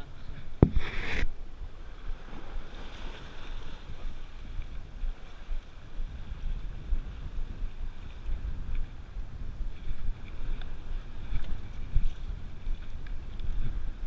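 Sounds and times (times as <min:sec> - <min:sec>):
wind buffeting microphone: 0:00.0 - 0:14.0.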